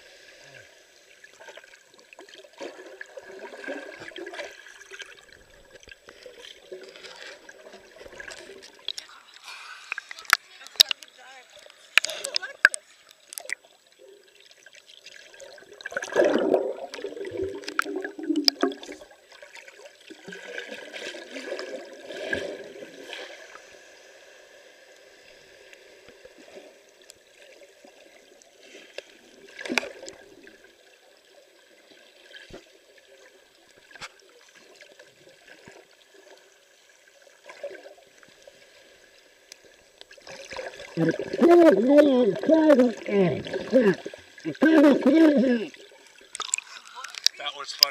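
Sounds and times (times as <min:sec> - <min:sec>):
water gurgling underwater: 0:13.4 - 0:23.2, 0:40.1 - 0:47.3.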